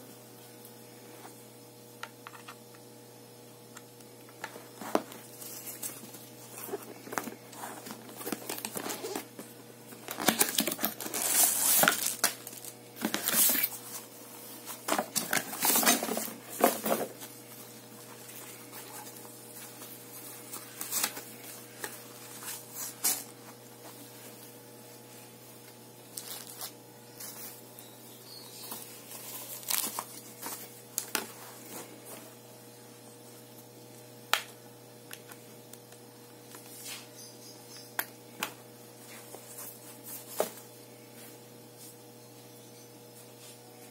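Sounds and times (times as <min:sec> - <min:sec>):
plastic packaging crinkling: 0:04.7 - 0:17.3, 0:26.1 - 0:27.6, 0:28.3 - 0:31.4.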